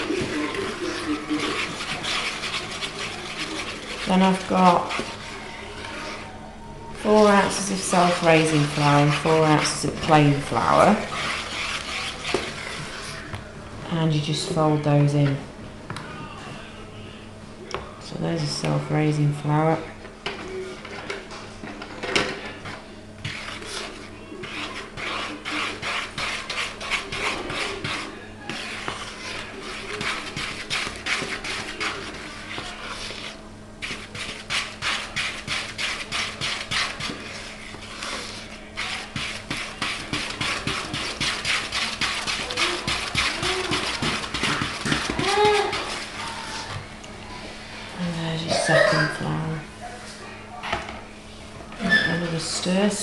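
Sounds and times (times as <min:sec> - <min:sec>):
wooden spoon beating batter in bowl: 0:00.0 - 0:06.3, 0:07.0 - 0:13.5, 0:20.3 - 0:46.9.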